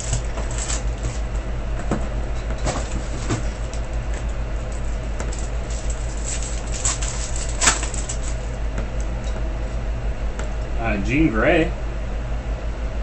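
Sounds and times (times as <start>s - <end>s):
foil pack ripping open: 0.0s - 1.3s, 4.8s - 8.6s
foil packs crinkling: 0.0s - 1.4s, 2.6s - 8.6s
steady low hum: 0.0s - 13.0s.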